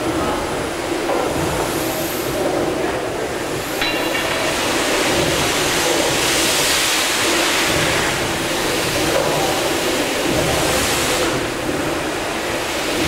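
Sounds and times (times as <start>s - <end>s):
steam hissing: 0.0s - 13.0s.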